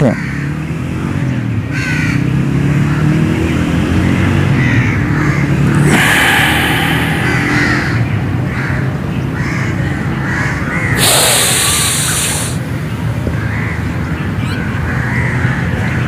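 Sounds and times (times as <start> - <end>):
low traffic rumble: 3.7 - 10.2
brief rush of noise: 5.7 - 8.6, 11.0 - 12.6.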